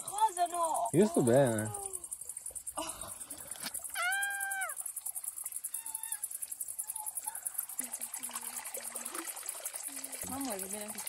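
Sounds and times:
woman's high-pitched cry: 4.0s - 4.8s, 5.7s - 6.2s.

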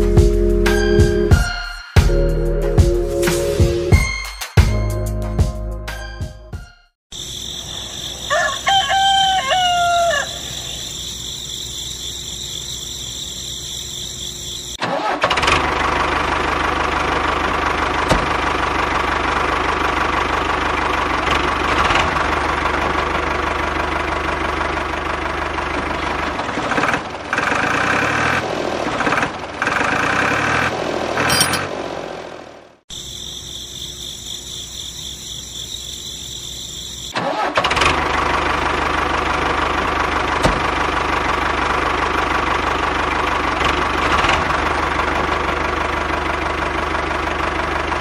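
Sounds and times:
insects chirring: 7.1s - 14.8s, 32.9s - 37.2s
rooster crowing: 7.2s - 11.6s
diesel tractor engine running: 7.2s - 48.0s.

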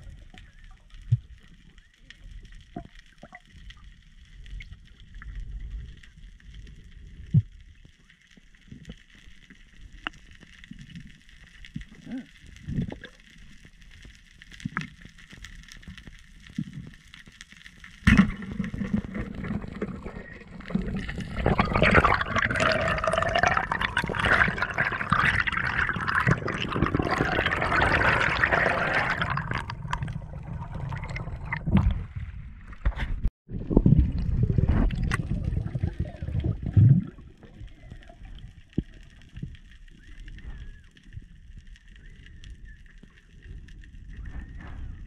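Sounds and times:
water bubbling and rushing: 18.1s - 32.9s, 33.5s - 38.8s.

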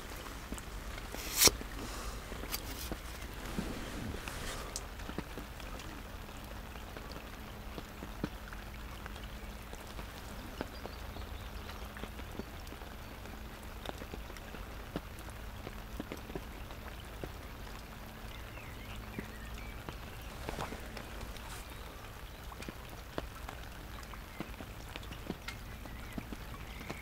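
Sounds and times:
rain on umbrella and lake: 0.0s - 27.0s
drips tapping: 19.1s - 27.0s.

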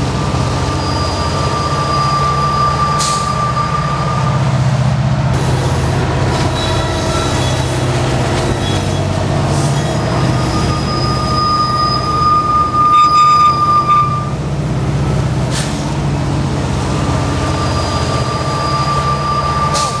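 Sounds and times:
diesel locomotive engine rumble: 0.0s - 20.0s
train wheel squeal: 0.6s - 4.4s, 6.3s - 14.4s, 17.2s - 20.0s.

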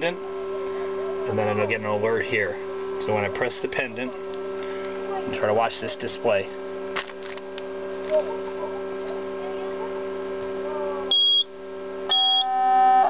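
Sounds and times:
electrical hum: 0.0s - 13.0s
short high beeps: 11.1s - 11.5s, 12.1s - 12.6s
steady alarm tone: 11.1s - 13.0s.

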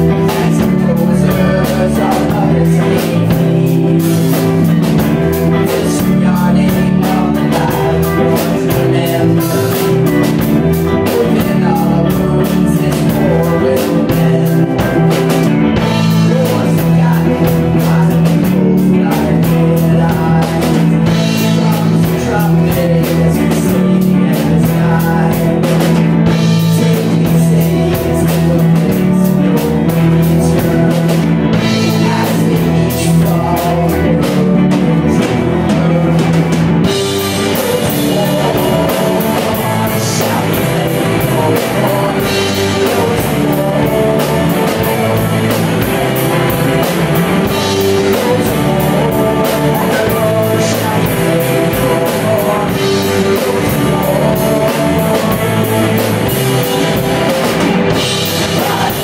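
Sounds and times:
live rock band playing: 0.0s - 59.0s.

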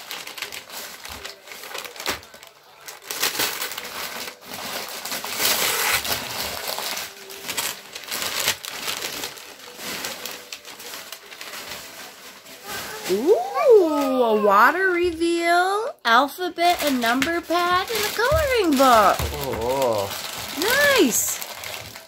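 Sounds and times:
wrapping paper tearing and crinkling: 0.0s - 15.2s, 16.6s - 22.0s.

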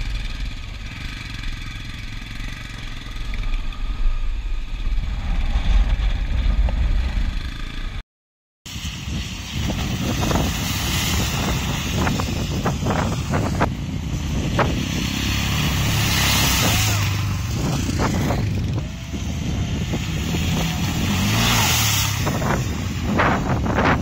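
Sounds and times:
motorcycle engine running: 0.0s - 8.0s, 8.7s - 24.0s
scooter engine running: 0.0s - 8.0s, 8.7s - 24.0s
water splashing from tyres: 8.7s - 24.0s.

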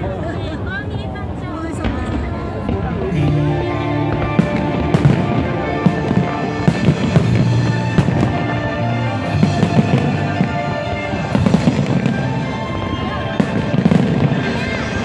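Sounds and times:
fireworks shells bursting: 4.1s - 15.0s.

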